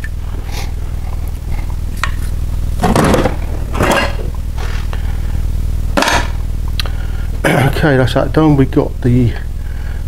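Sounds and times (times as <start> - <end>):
steady low hum: 0.0 - 10.0
metal tools scraping and clattering: 3.8 - 4.3.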